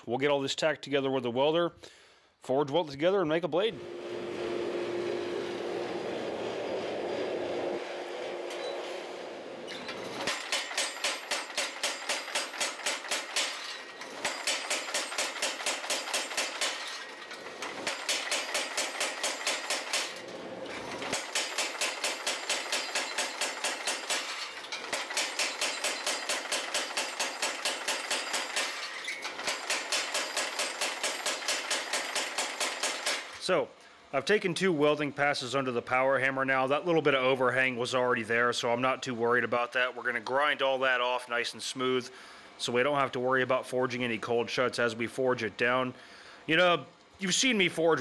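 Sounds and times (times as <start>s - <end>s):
forge running: 3.8s - 32.1s
power hammer striking metal: 6.3s - 33.4s.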